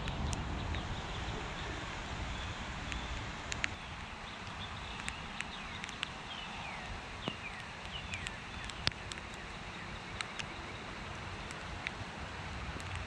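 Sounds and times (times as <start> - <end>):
bird chirps: 0.0 - 11.0
steady hiss: 0.0 - 13.0
sharp clicks: 2.9 - 6.2, 7.2 - 9.6, 10.2 - 10.5.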